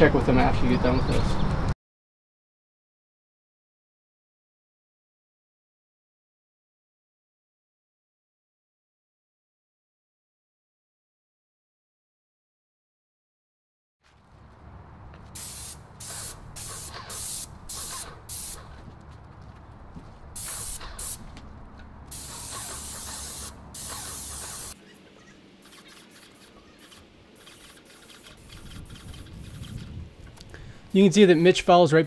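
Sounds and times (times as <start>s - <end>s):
paint sprayer hissing: 15.4s - 18.8s, 20.4s - 21.3s, 22.1s - 24.8s, 25.6s - 30.0s.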